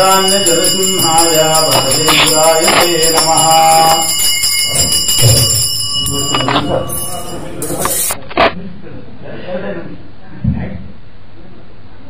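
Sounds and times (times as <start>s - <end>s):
person singing devotional song: 0.0s - 8.1s
hand bell ringing: 0.0s - 8.2s.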